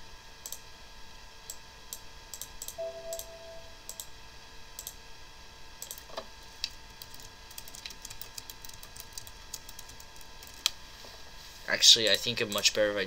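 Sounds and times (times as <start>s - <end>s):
faint computer whine: 0.0s - 13.0s
typing on computer keyboard: 6.9s - 10.7s.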